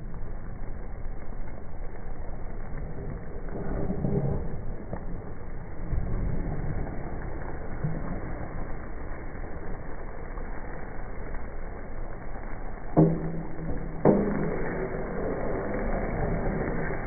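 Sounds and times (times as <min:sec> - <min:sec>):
steady low rumble: 0:00.0 - 0:17.0
food cooking in a pan: 0:04.7 - 0:17.0.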